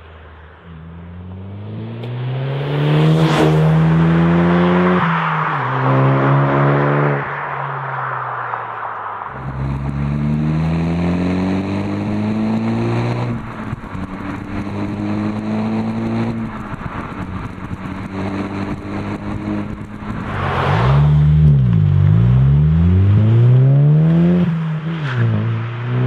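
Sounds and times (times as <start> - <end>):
car exhaust accelerating hard: 9.3 - 24.6.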